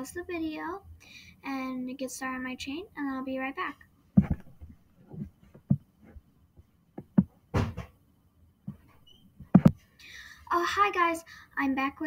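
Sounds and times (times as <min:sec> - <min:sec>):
handling knocks and clicks: 0:04.2 - 0:05.8, 0:08.7 - 0:09.8.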